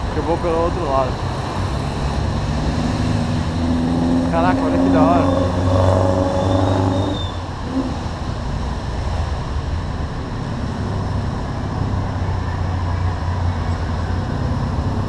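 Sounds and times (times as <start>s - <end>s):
trike engine: 0.0s - 8.3s
traffic engine rumble: 0.0s - 15.0s.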